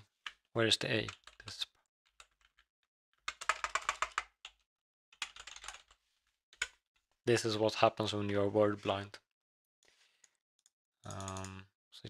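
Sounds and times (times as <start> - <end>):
typing on computer keyboard: 3.3 - 4.6, 5.2 - 6.0, 11.1 - 11.6.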